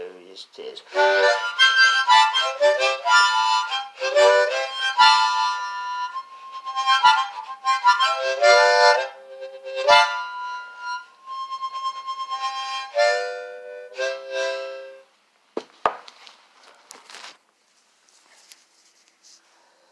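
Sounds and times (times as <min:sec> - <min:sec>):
harmonica playing: 0:00.9 - 0:15.1
sharp knocks: 0:15.6 - 0:16.1.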